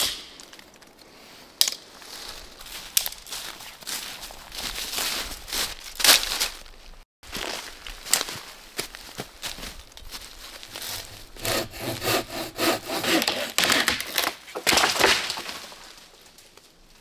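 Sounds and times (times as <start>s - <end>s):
saw cutting through dry wood: 10.7s - 14.3s.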